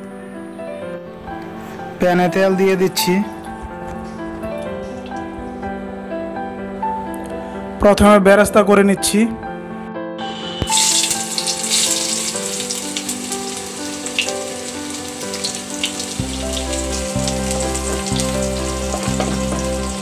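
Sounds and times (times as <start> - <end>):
onions sizzling in hot oil: 10.3 - 20.0.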